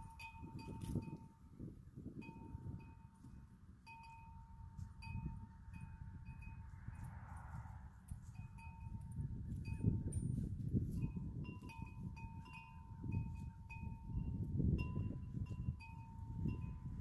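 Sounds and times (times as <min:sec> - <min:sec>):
wind chime ringing: 0:11.4 - 0:17.0.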